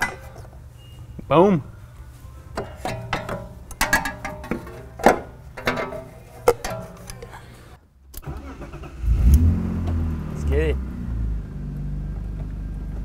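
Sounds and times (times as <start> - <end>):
metal tools clinking and clanking: 0.0 - 0.6, 2.5 - 7.5.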